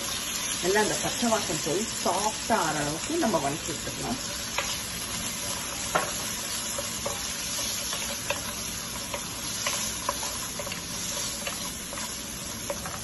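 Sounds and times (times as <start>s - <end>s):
vegetables sizzling in oil: 0.0s - 13.0s
spatula scraping and tapping pan: 4.4s - 13.0s.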